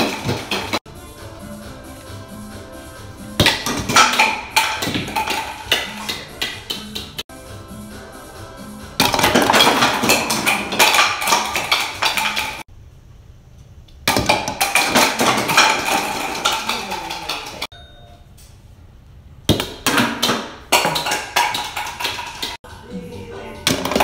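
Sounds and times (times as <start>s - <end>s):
plastic bowling pins clattering: 0.0s - 0.8s, 3.4s - 7.2s, 9.0s - 12.6s, 14.1s - 17.7s, 19.8s - 22.6s, 23.7s - 24.0s.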